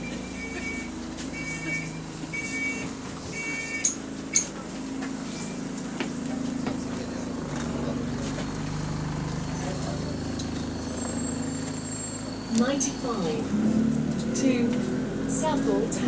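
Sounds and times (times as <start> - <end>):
bus door warning beeps: 0.0 - 4.6, 5.3 - 5.7, 9.4 - 13.5
diesel engine hum: 0.0 - 16.0.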